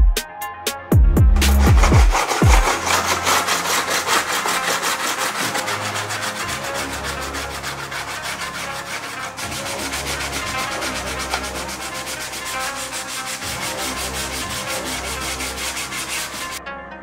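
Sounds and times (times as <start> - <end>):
sanding pad rubbing plastic: 1.4 - 16.6.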